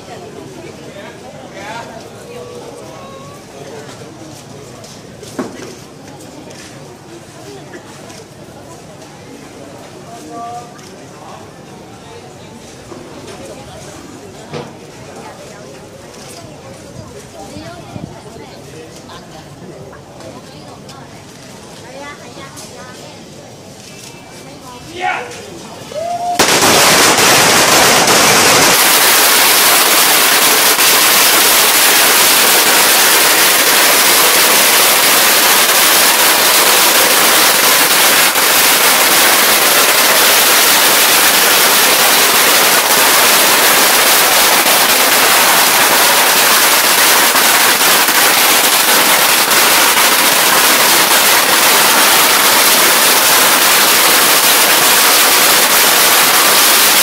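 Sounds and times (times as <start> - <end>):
firecrackers crackling: 1.7 - 9.0, 25.9 - 57.0.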